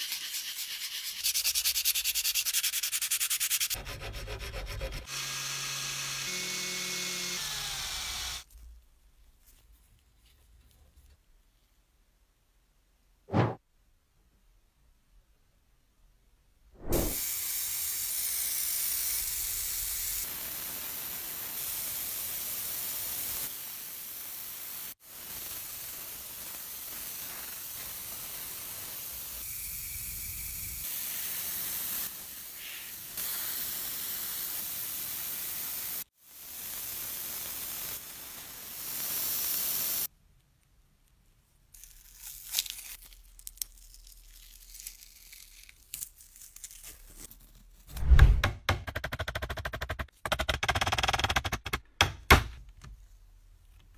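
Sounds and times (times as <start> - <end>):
spraying hiss: 17.0 - 40.1
masking tape being peeled off: 41.7 - 48.2.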